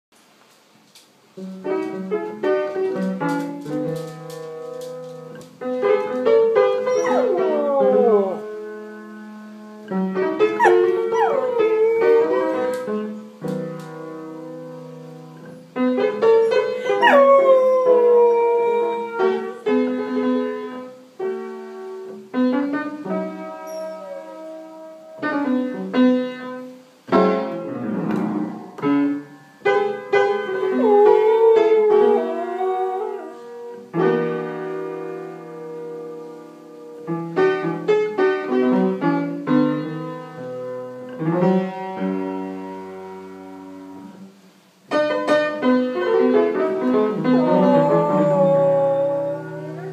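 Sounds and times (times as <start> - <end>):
blues piano: 0.4 - 49.9
dog howling: 6.9 - 8.5, 10.6 - 12.9, 16.8 - 19.5, 23.7 - 25.3, 30.7 - 33.7, 47.2 - 49.9.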